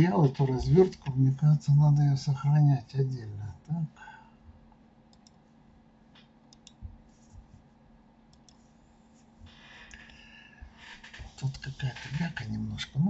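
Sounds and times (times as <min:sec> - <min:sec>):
computer mouse clicks: 0:05.1 - 0:05.4, 0:06.2 - 0:06.8, 0:08.3 - 0:08.7.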